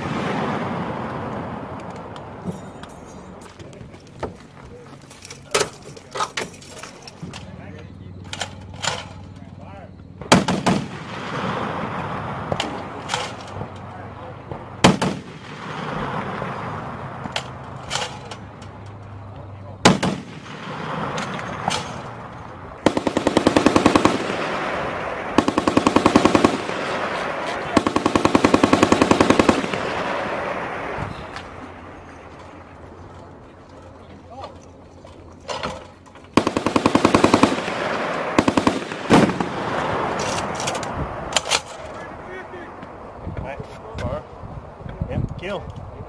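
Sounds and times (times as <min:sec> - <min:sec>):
heavy machine gun firing: 0:10.2 - 0:13.8, 0:14.5 - 0:18.3, 0:19.8 - 0:31.0, 0:36.3 - 0:40.8.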